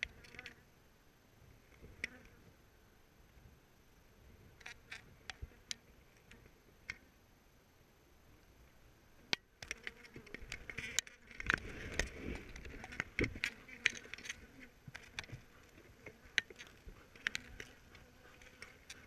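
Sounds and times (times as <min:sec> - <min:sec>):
bees buzzing: 0:09.6 - 0:19.0.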